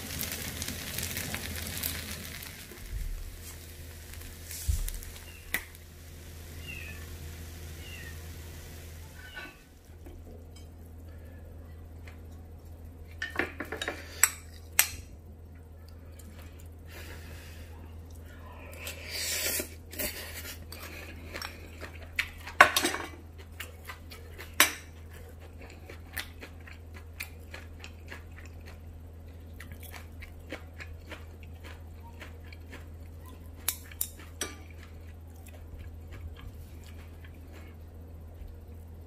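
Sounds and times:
steady hum: 0.0 - 39.0
chewing: 18.0 - 22.6, 23.2 - 38.7.

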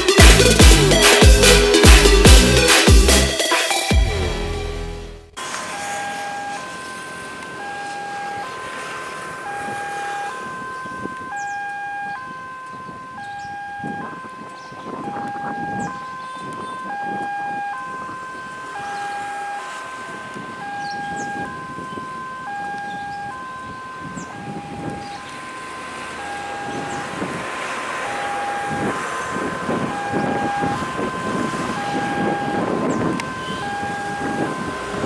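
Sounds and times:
level crossing warning alarm: 0.0 - 4.0, 5.4 - 35.0.

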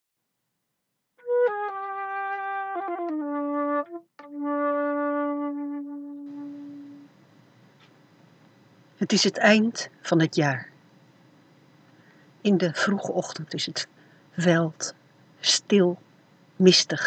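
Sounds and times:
solo wind instrument melody: 1.2 - 7.1
faint hiss: 6.2 - 17.0.

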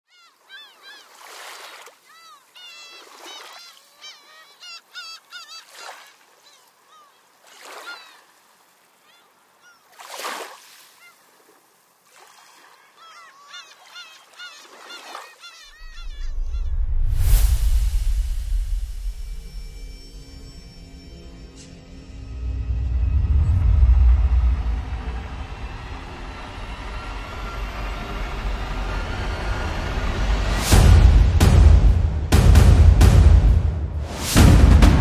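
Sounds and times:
birds honking calls: 0.1 - 8.3, 12.7 - 16.8
soft rush of noise: 21.8 - 31.6.

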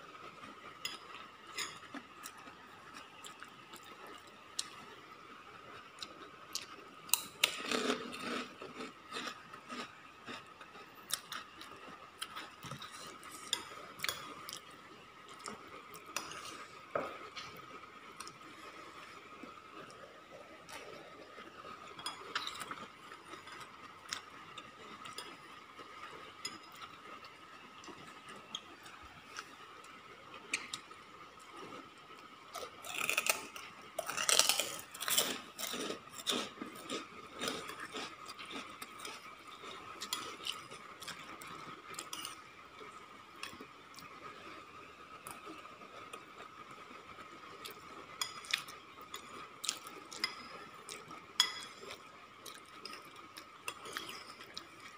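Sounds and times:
spoon clinking ceramic bowl: 51.4 - 51.8.

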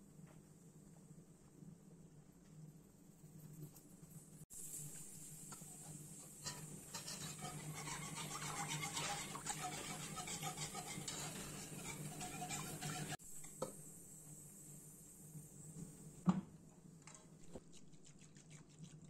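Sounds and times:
whisk beating in a pot: 4.7 - 13.2, 17.3 - 19.0.

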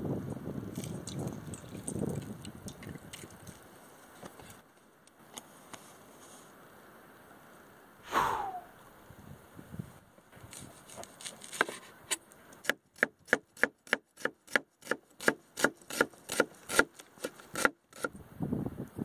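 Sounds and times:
knife slicing onion on board: 12.6 - 18.1.

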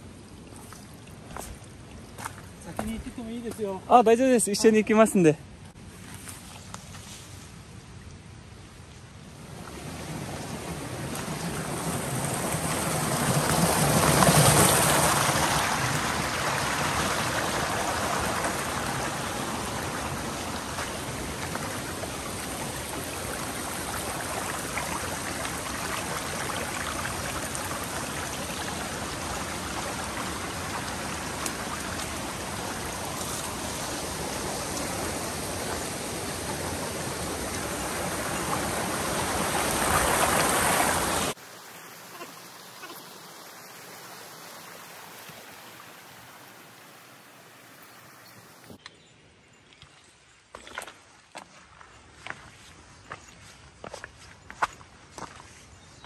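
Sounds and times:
mountain stream rushing: 9.2 - 48.8.

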